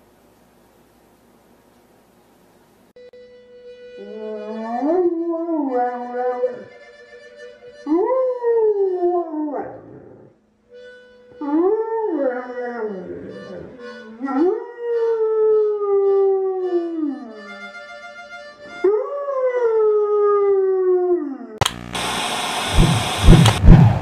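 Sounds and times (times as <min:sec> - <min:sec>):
dog howling: 0:04.0 - 0:06.7, 0:07.9 - 0:10.3, 0:11.4 - 0:17.5, 0:18.8 - 0:21.6
faint musical notes: 0:10.7 - 0:19.0.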